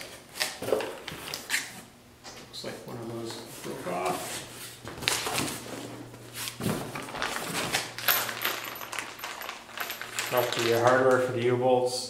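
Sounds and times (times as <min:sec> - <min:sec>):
steady low hum: 0:01.8 - 0:12.0
rummaging in cardboard box: 0:05.1 - 0:11.0.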